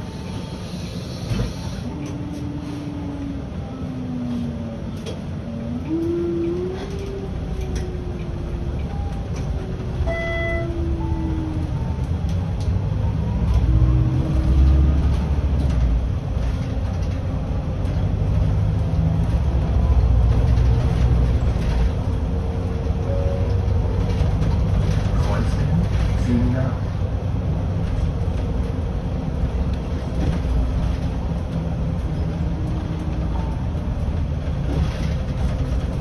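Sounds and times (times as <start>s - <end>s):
bus drivetrain and road rumble: 0.0s - 36.0s
short electronic beep: 10.0s - 10.8s.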